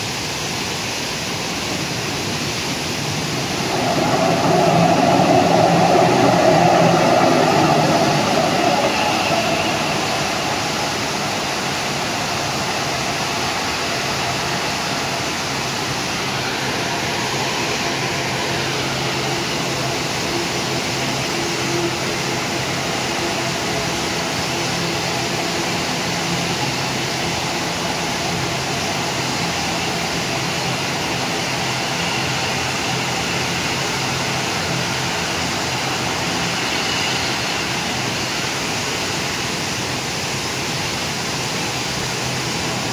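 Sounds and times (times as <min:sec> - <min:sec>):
river rushing: 0:00.0 - 0:31.2
turboprop engines droning: 0:00.1 - 0:42.9.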